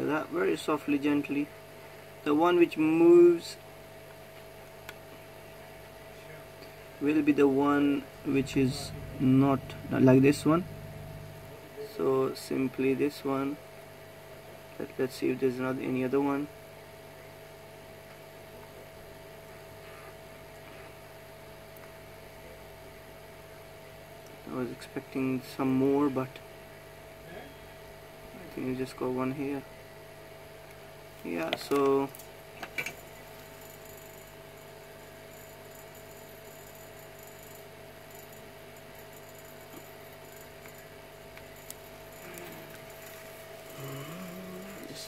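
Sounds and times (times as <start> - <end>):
electrical hum: 0.0 - 45.0
thin steady whine: 0.0 - 45.0
small ticks: 35.3 - 44.9.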